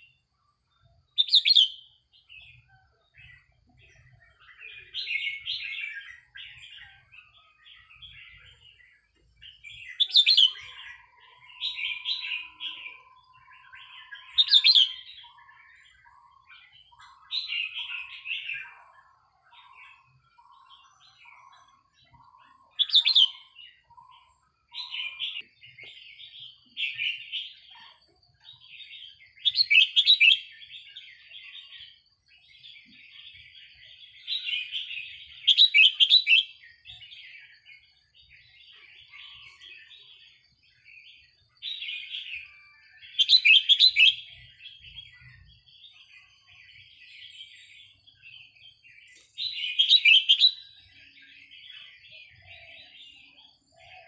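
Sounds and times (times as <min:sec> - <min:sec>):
bird singing whistled phrases: 0:01.2 - 0:02.0, 0:09.8 - 0:15.4, 0:22.5 - 0:24.1, 0:29.4 - 0:30.5, 0:35.4 - 0:36.6, 0:42.1 - 0:45.5, 0:49.5 - 0:51.2.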